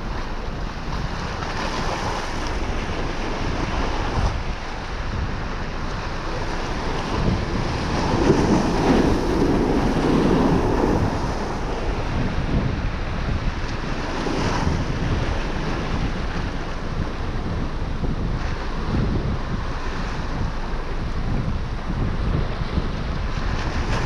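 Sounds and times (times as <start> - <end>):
sea surf against pier: 0.0 - 24.0
wind buffeting microphone: 0.0 - 24.0.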